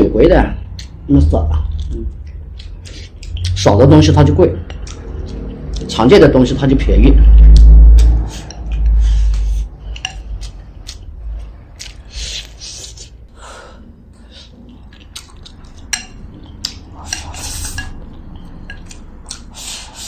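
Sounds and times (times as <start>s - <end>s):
chopsticks clicking against bowl: 4.6s - 6.0s, 7.5s - 11.1s, 15.0s - 19.5s.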